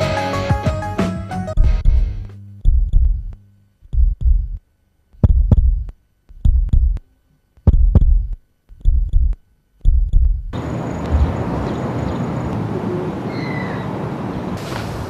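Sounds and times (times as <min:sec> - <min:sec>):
heartbeat double thump: 0:01.6 - 0:04.6, 0:05.2 - 0:07.0, 0:07.6 - 0:10.6.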